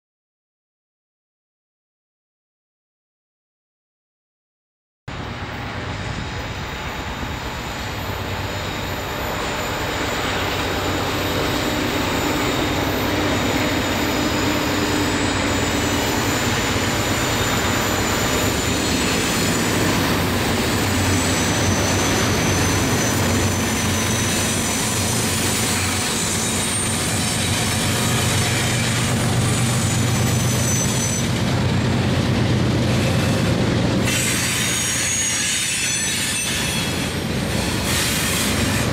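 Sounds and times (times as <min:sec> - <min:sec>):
locomotive engine drone: 0:05.1 - 0:35.3
train wheels rumbling on rail: 0:05.1 - 0:38.9
high wheel squeal: 0:06.9 - 0:32.1, 0:32.9 - 0:38.9.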